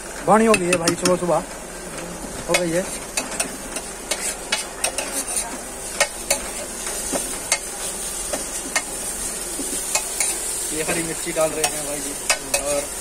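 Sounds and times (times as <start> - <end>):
food sizzling in a pan: 0.0 - 13.0
utensil scraping a pan: 2.5 - 8.9.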